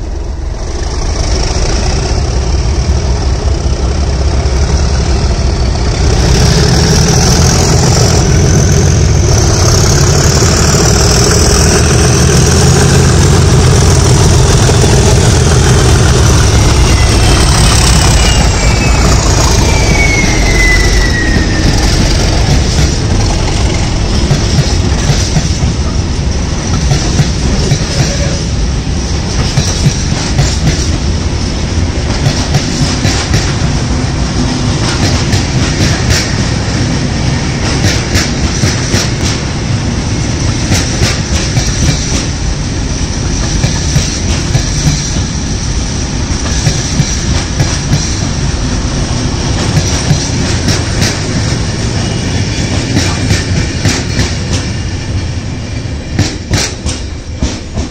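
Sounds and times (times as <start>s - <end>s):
high engine whine: 0.0s - 29.5s
diesel locomotives passing: 0.0s - 57.9s.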